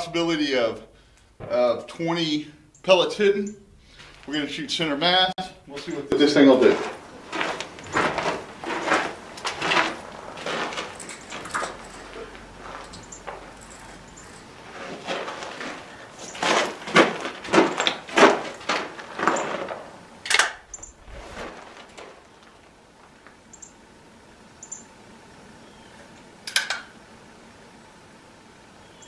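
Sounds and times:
shotgun handling knocks and rattles: 10.4s - 20.7s
sharp metallic click: 26.4s - 26.9s.

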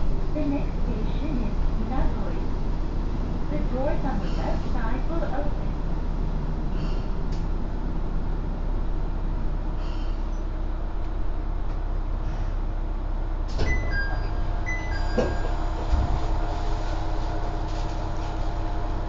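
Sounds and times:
diesel railcar engine running: 0.0s - 19.0s
two-note door chime: 13.7s - 15.5s
clunk: 15.0s - 16.1s.

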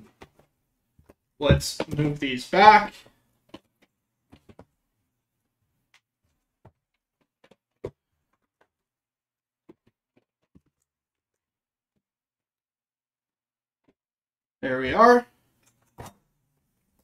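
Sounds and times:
cardboard boxes tapping and knocking: 0.0s - 2.2s, 3.5s - 4.8s, 6.6s - 8.8s, 9.6s - 10.8s.

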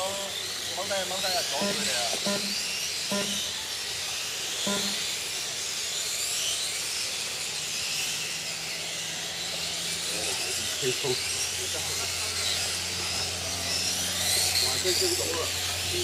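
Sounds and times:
electric motors whining: 0.0s - 16.0s.

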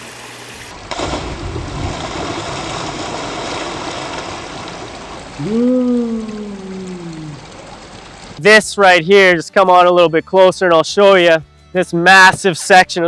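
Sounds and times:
waterfall rushing: 0.9s - 8.4s
person's long rising falling vocal: 5.4s - 7.4s.

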